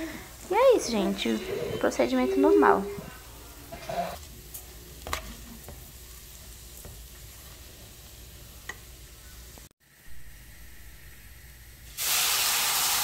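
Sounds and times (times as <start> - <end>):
rice sizzling in a pan: 3.3 - 10.1, 11.8 - 13.0.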